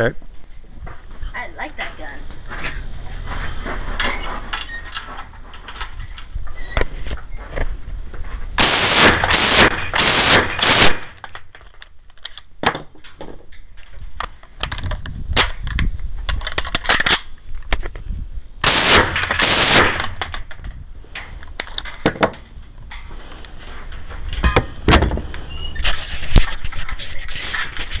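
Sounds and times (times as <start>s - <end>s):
single gunshots: 8.6s - 11.2s, 18.6s - 20.2s
submachine gun full-auto bursts: 8.6s - 11.2s, 18.6s - 20.1s.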